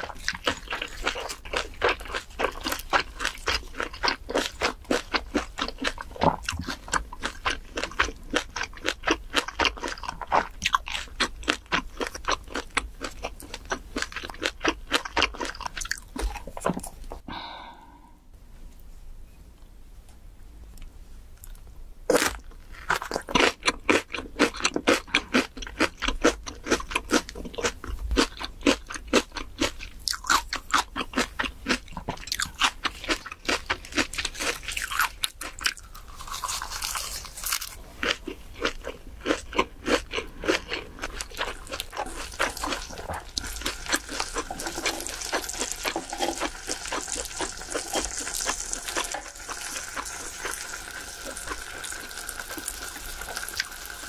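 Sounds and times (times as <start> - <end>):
crunchy chewing: 0.0 - 17.2, 21.4 - 54.0
pork sizzling on a griddle: 44.4 - 54.0.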